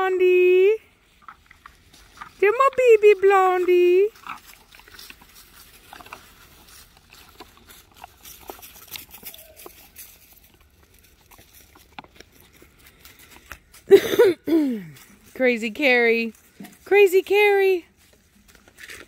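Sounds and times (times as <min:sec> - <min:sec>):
puppies scuffling and pattering: 0:01.0 - 0:13.9.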